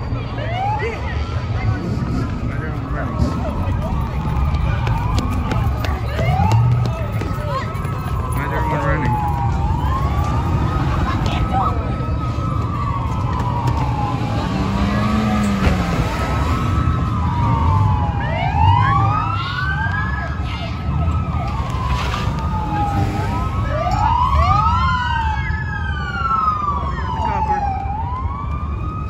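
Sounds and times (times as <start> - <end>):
police sirens wailing: 0.0 - 29.0.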